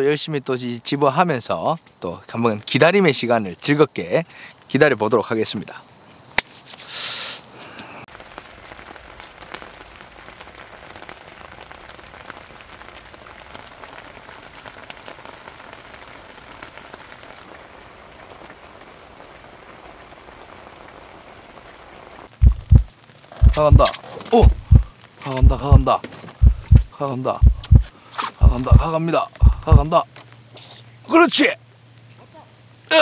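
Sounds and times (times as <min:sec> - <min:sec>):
rain falling: 0:08.0 - 0:33.0
drops ticking: 0:22.4 - 0:23.8, 0:24.4 - 0:29.9.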